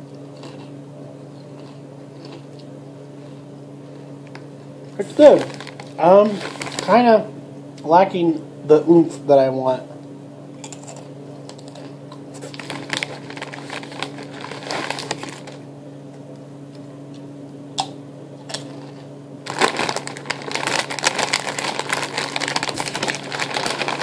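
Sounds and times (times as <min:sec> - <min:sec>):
chewing potato chips: 0:00.0 - 0:07.0, 0:10.6 - 0:15.6, 0:17.8 - 0:24.0
plastic chip bag crinkling: 0:05.0 - 0:07.2, 0:10.7 - 0:15.6, 0:18.5 - 0:24.0.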